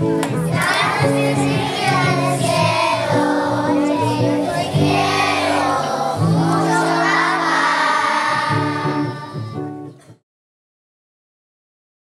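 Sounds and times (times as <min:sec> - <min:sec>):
young children singing: 0:00.3 - 0:09.8.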